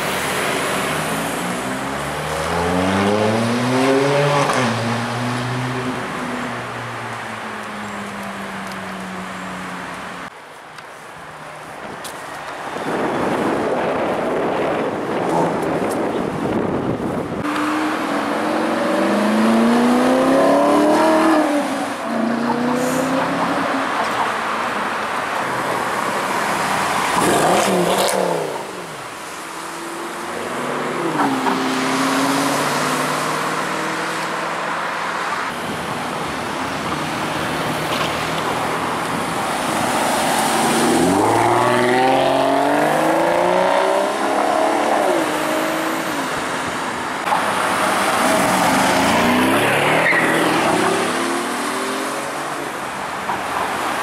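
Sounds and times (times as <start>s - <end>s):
cars accelerating past: 0.0s - 7.4s, 16.5s - 36.1s, 36.7s - 53.0s.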